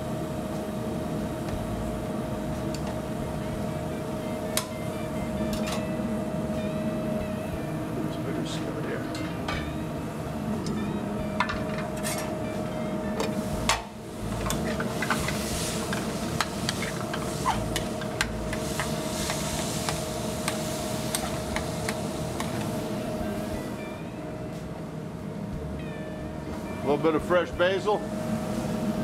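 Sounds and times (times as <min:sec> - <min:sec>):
meat sizzling in a skillet: 0:14.9 - 0:22.2.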